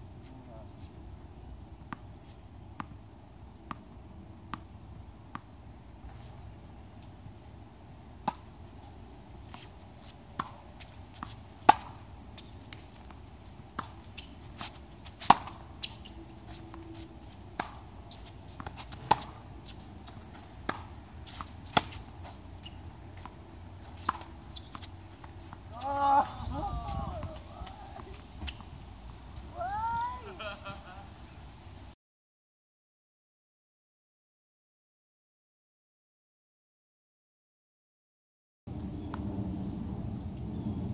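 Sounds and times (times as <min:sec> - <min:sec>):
tennis ball bouncing on hard court: 0:08.2 - 0:08.5, 0:09.5 - 0:16.6, 0:17.4 - 0:28.7
racket hitting tennis ball: 0:08.2 - 0:08.7, 0:09.3 - 0:28.7.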